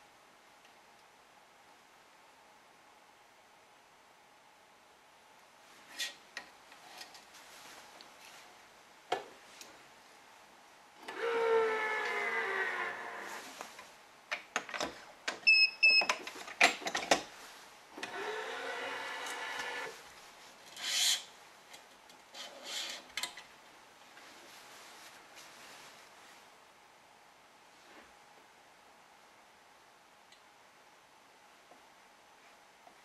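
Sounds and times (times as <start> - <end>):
motor whine of stringing machine: 11.0 - 13.3.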